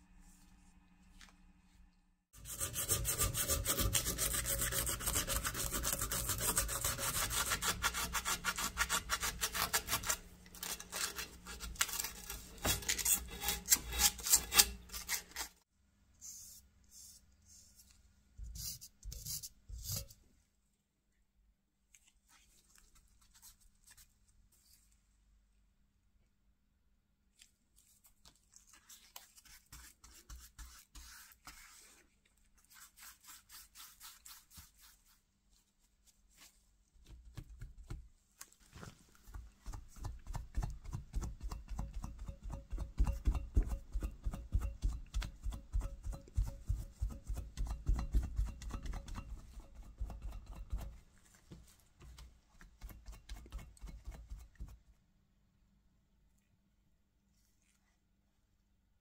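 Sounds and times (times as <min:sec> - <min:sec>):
dull rubbing strokes on metal: 0:02.4 - 0:09.9
stick scraping on metal plate: 0:09.0 - 0:15.4.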